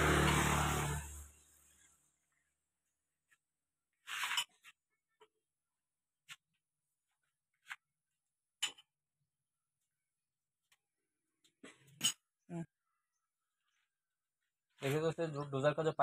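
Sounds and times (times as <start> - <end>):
short metal scrape: 4.0 - 4.6.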